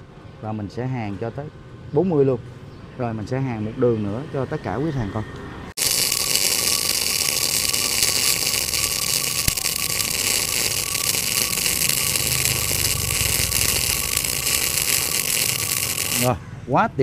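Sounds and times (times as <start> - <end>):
sharp welding pop: 5.8 - 16.4
welding arc hissing: 5.8 - 16.4.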